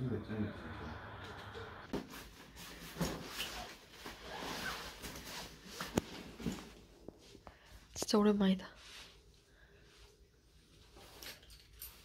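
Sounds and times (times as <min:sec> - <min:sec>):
backpack and clothing rustling: 0:02.0 - 0:07.4.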